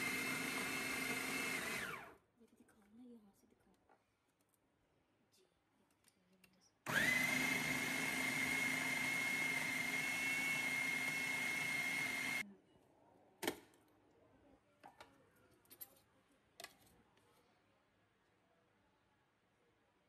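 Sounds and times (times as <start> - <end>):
food processor motor whining: 0.0 - 2.2, 6.9 - 12.4.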